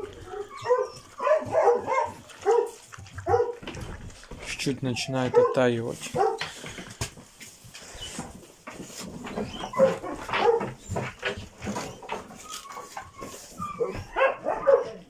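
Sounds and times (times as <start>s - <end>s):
hounds whining and yelping: 0.0s - 3.9s, 4.8s - 5.6s, 6.2s - 6.5s, 9.2s - 15.0s
knocks from dogs moving: 0.0s - 14.3s.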